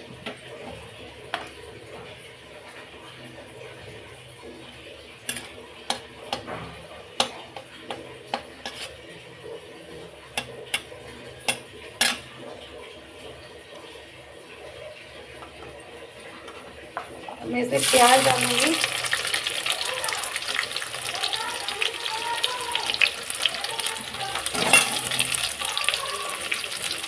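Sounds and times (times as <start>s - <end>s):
oil sizzling: 17.4s - 27.0s
spatula clinking on metal pan: 24.5s - 25.4s.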